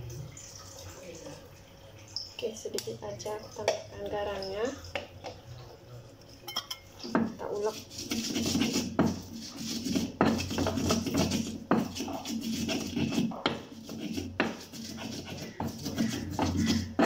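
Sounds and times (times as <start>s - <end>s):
stone scraping on stone: 7.4s - 17.0s
pestle knocking in mortar: 8.0s - 17.0s.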